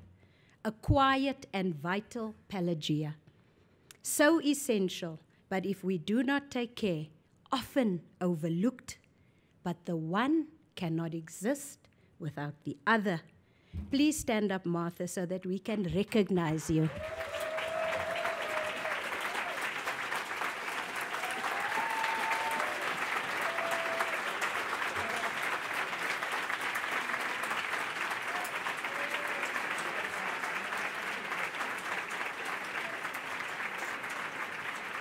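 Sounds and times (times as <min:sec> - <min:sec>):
large audience applauding: 0:16.6 - 0:35.0.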